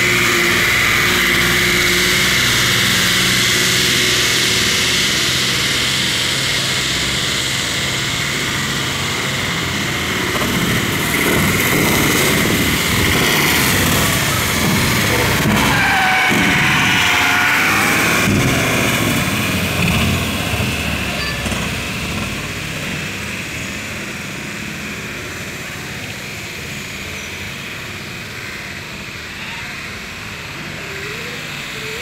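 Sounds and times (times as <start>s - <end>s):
tyre noise on wet road: 0.0s - 30.8s
vehicle engines passing: 0.0s - 32.0s.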